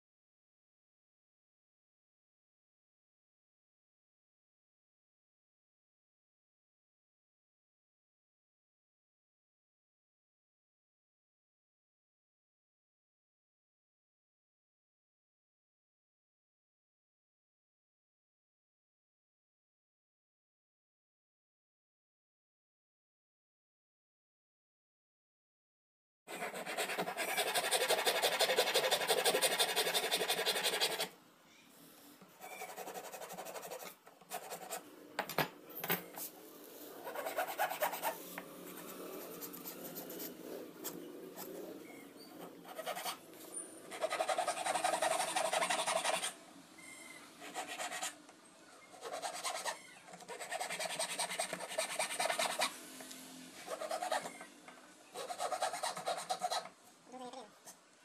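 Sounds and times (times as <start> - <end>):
metal file rasping wood: 26.3 - 31.1, 43.9 - 46.3, 55.2 - 56.7.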